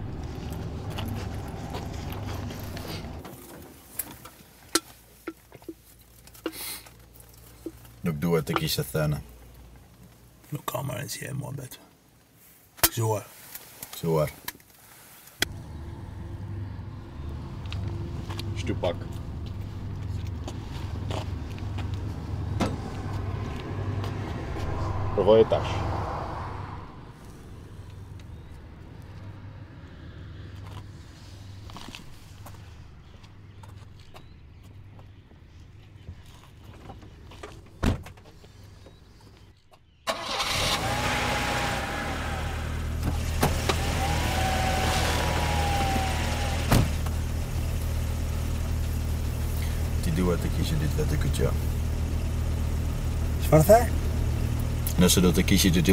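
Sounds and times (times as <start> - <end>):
low vehicle rumble: 0.0 - 4.4, 15.4 - 39.6, 40.5 - 55.9
car engine and road noise: 0.0 - 55.9.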